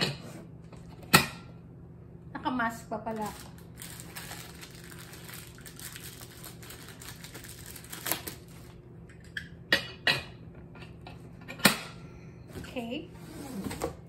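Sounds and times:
plastic wrapping rustling: 3.1 - 8.8.

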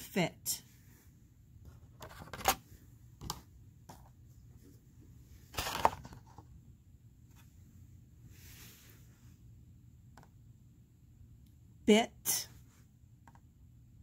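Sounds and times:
rustling clatter of card: 1.8 - 2.6, 5.5 - 6.5.

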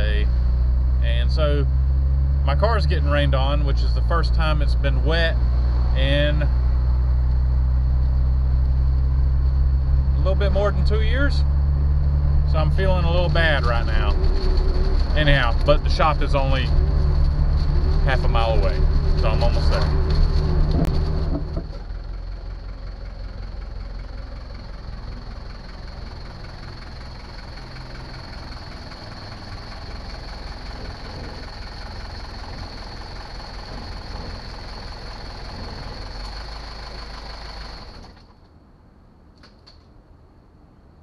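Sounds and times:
car cabin driving noise: 0.0 - 38.3
diesel engine idling with whine: 0.0 - 38.4.

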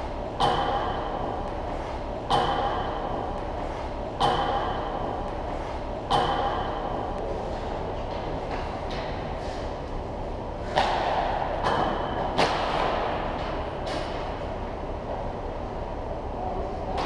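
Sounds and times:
steady background noise: 0.0 - 17.0
hockey stick striking puck: 10.7 - 14.2.

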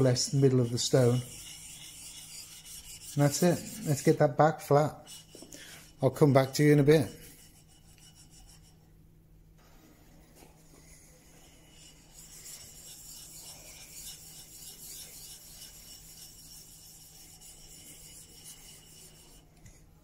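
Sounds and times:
chisel scraping on sharpening stone: 0.3 - 4.2, 11.6 - 19.4.

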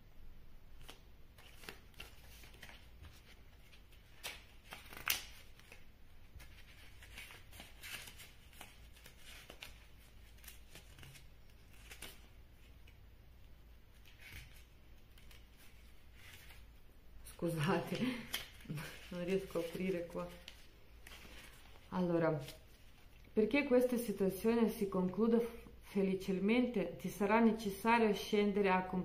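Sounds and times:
paper rustling: 0.8 - 13.0, 13.9 - 16.7, 17.6 - 23.3
crisp page flicks: 4.2 - 5.7.

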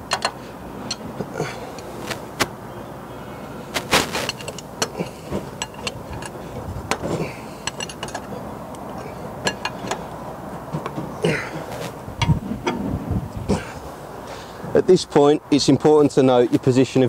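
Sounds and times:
spanner clinking on bolts: 0.0 - 1.1, 4.3 - 11.0.

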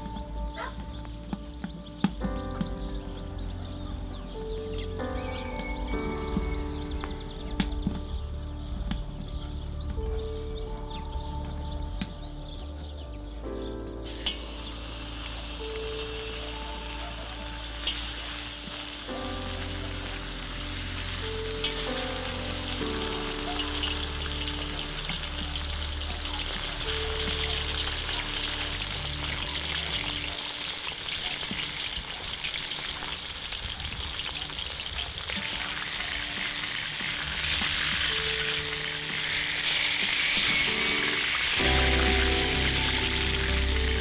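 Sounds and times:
soft background music: 0.0 - 44.0
meat sizzling in hot oil: 14.0 - 44.0.

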